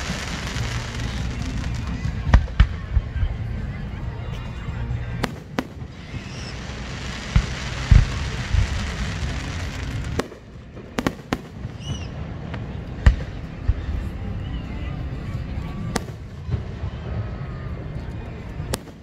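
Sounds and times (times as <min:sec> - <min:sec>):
firework crackling hiss: 0:00.0 - 0:02.8, 0:05.2 - 0:12.2
firework bangs and thumps: 0:00.0 - 0:03.7, 0:05.1 - 0:14.1.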